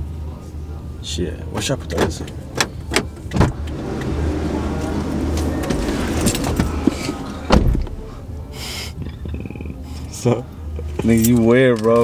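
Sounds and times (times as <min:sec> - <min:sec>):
outside noise: 0:00.0 - 0:12.0
car door shutting: 0:01.9 - 0:08.2.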